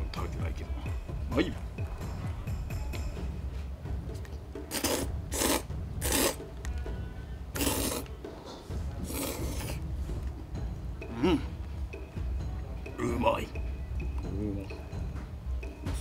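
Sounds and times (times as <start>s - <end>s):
noodles being slurped: 4.7s - 6.4s, 7.6s - 8.1s.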